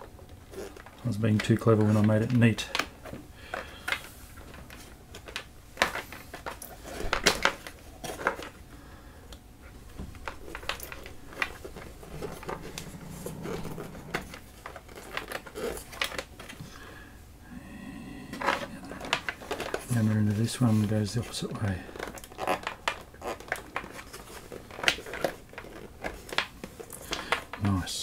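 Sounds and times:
cable rubbing along board: 0:11.3 - 0:15.8.

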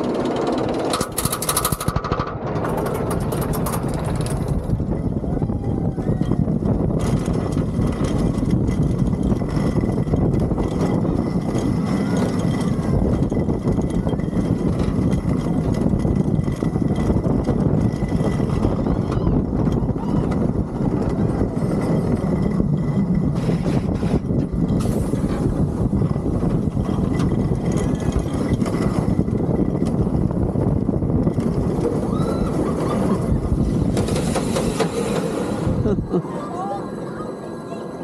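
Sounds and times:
roller coaster rumbling on track: 0:00.0 - 0:38.0.

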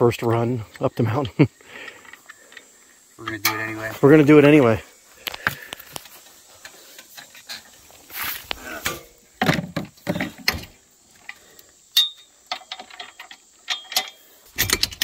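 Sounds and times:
metal clanks and scraping: 0:05.4 - 0:15.0.

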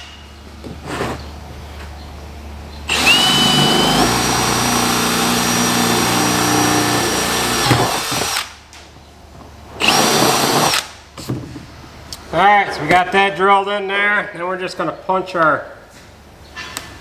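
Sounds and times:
cordless drill boring through plastic: 0:02.9 - 0:08.5, 0:09.8 - 0:10.9.

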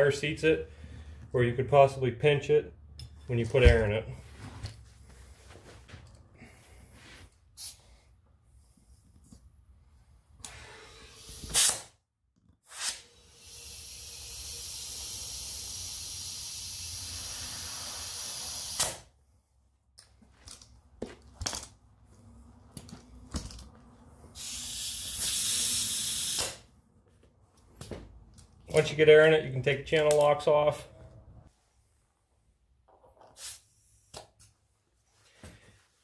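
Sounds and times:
compressed air hissing: 0:12.7 - 0:18.9, 0:24.3 - 0:26.6.

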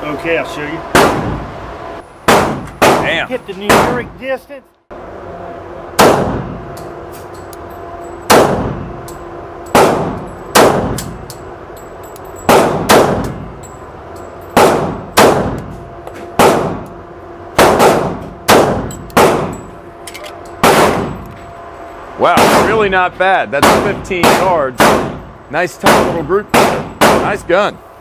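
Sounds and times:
steady low hum: 0:00.0 - 0:28.0
pistol shots echoing indoors: 0:09.7 - 0:11.2, 0:12.5 - 0:13.4, 0:20.6 - 0:21.2, 0:23.6 - 0:25.2, 0:25.8 - 0:27.3
brass cases clinking: 0:11.2 - 0:12.5, 0:13.5 - 0:14.6.

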